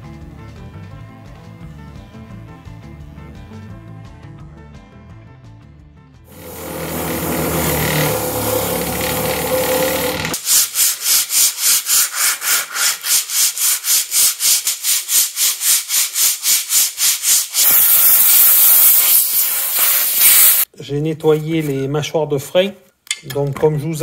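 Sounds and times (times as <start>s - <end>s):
steady whirring: 6.3s - 10.4s
brush scrubbing brake shoes: 10.4s - 18.2s.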